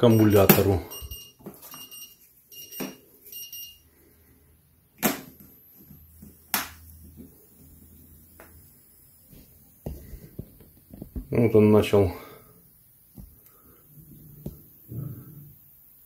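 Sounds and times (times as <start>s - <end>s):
short high electronic beeps: 0.0s - 3.8s.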